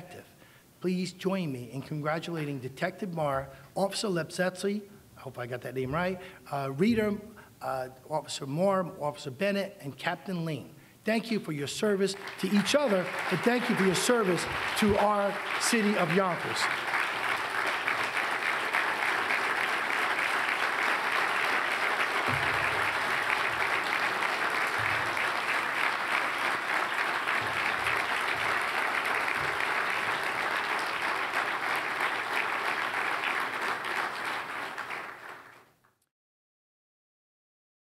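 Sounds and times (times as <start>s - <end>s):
large audience applauding: 12.0s - 35.9s.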